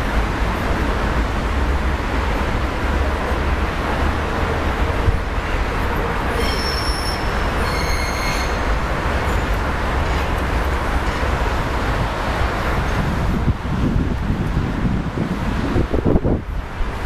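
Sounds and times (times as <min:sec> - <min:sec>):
road traffic rumble: 0:00.0 - 0:17.0
short high squeals: 0:06.3 - 0:08.8.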